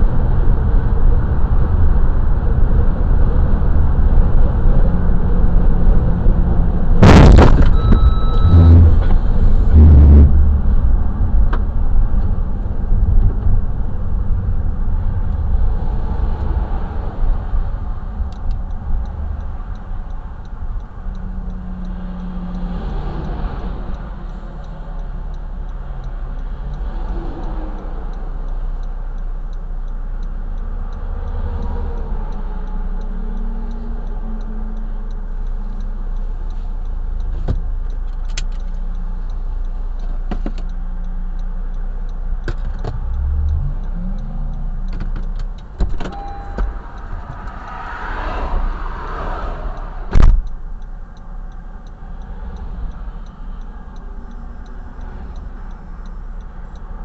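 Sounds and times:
highway traffic rumble: 0.0s - 57.0s
car door shutting: 45.0s - 46.8s
hazard flasher ticking: 49.8s - 57.0s.

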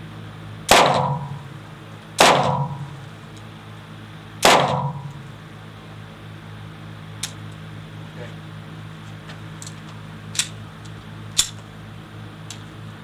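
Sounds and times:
pistol shots echoing: 0.7s - 1.5s, 2.2s - 3.0s, 4.4s - 5.2s.

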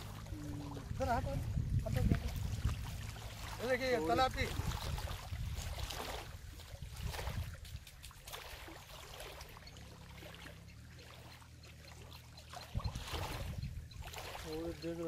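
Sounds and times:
wind rumble on microphone: 0.0s - 8.3s, 12.6s - 15.0s
small waves lapping: 0.0s - 15.0s.

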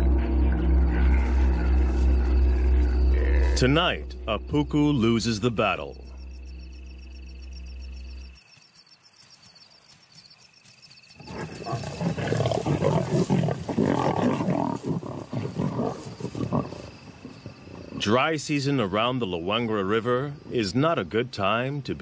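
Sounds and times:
lions snarling and growling: 0.0s - 3.9s, 11.2s - 18.2s.

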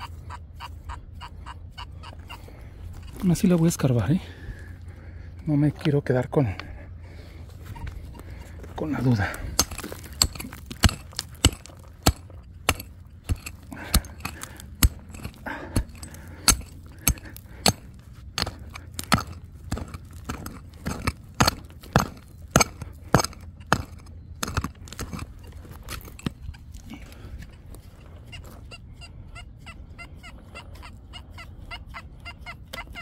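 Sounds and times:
digging tool striking stony ground: 7.8s - 28.4s.

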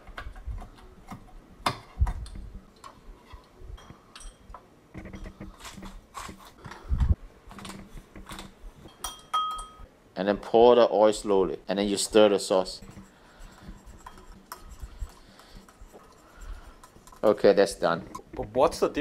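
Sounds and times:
knife scraping into glass bowl: 12.8s - 17.2s.

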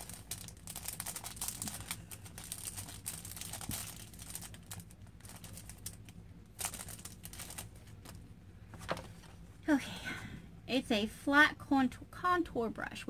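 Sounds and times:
packaging crinkling: 0.0s - 9.4s.

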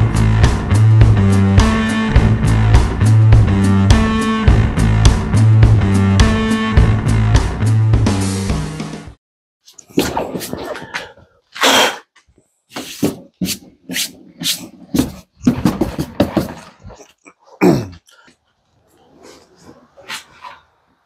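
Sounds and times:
rustles scrapes and knocks: 12.7s - 17.1s.

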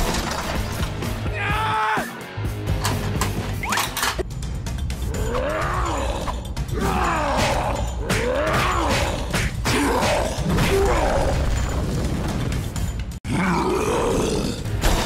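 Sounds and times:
background music: 0.0s - 15.0s
creature growling and grunting: 5.1s - 11.5s, 13.2s - 14.8s.

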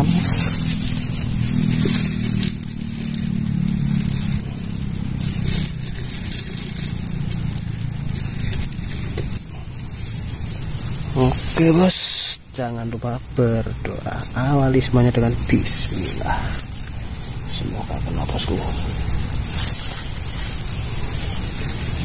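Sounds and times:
motor engine humming: 0.0s - 11.8s
constant hiss: 0.0s - 22.0s.

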